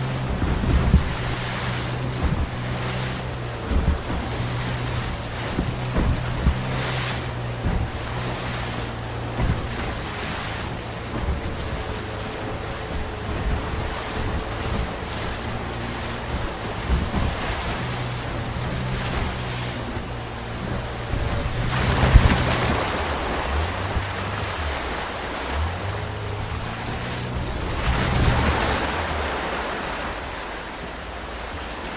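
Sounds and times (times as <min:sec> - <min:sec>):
outboard motor running: 0:00.0 - 0:31.9
wave breaking with loud splash: 0:00.0 - 0:31.9
whitewater rushing and splashing: 0:00.0 - 0:31.9
wind buffeting microphone: 0:00.0 - 0:31.9.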